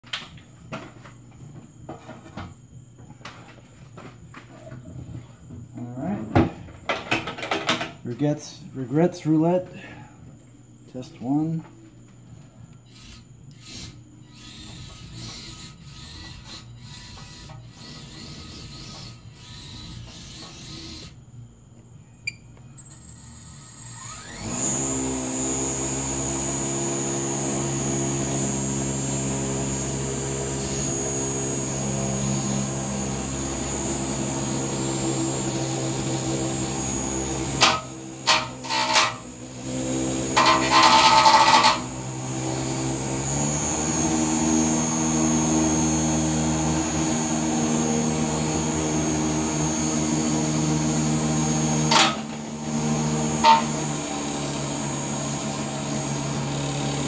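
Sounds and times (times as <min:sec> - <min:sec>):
spinning robot motor humming: 0:12.9 - 0:21.2, 0:22.8 - 0:46.1.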